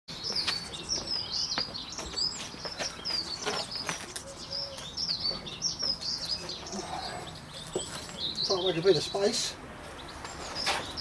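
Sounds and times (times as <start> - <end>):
small birds chirping: 0.1 - 11.0.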